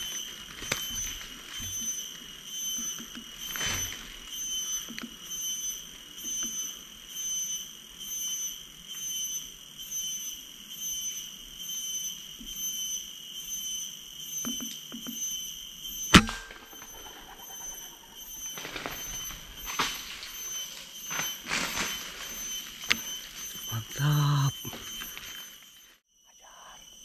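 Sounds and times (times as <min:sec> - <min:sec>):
pulsing insect drone: 0:00.0 - 0:27.0
air rifle shot: 0:16.2 - 0:18.0.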